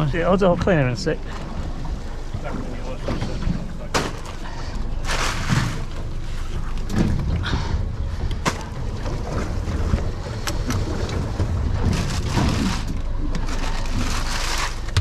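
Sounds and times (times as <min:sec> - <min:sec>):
plastic bag of ice rustling: 0:05.0 - 0:05.9, 0:11.8 - 0:15.0.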